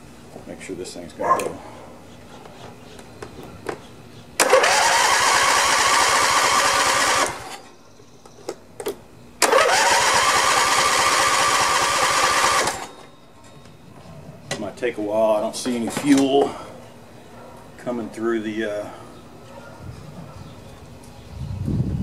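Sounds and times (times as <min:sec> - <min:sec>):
electric starter cranking engine: 0:04.4 - 0:07.7, 0:09.4 - 0:13.0.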